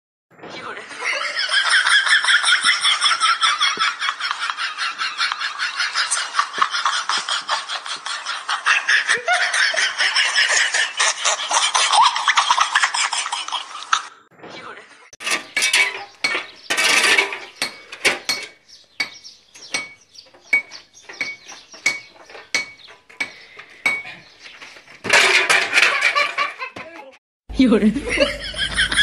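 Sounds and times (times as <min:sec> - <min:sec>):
laughter: 0:00.7 - 0:14.1, 0:25.7 - 0:27.2, 0:27.8 - 0:29.0.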